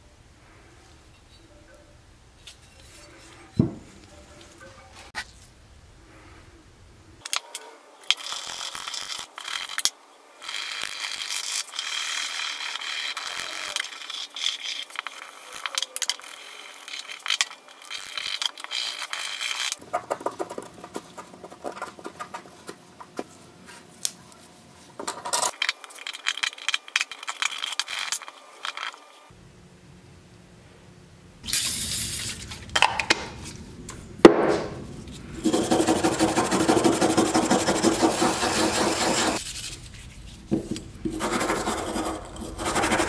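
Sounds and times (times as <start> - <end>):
scraping paint off metal: 35.4 - 43.0.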